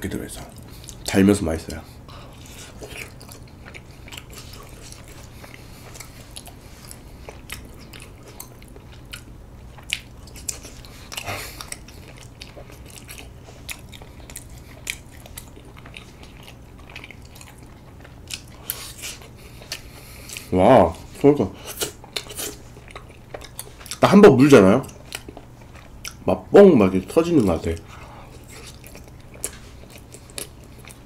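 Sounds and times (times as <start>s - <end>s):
faint low hum: 0.0s - 31.0s
wet chewing mouth clicks: 2.4s - 20.5s.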